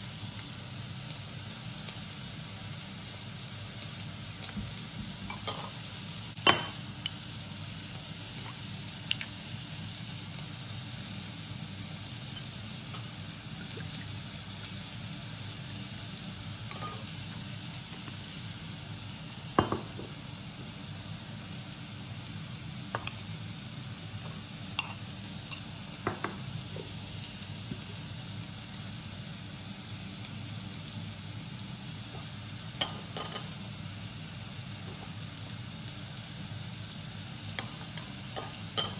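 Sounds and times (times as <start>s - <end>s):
steady background hiss: 0.0s - 38.9s
metal spoon clinking ceramic bowl: 24.8s - 26.3s, 32.8s - 33.5s, 38.4s - 38.9s.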